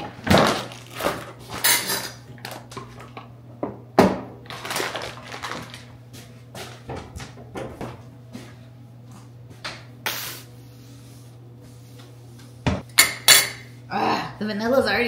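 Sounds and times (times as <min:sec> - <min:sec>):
paper bag rustling: 0:04.5 - 0:06.0.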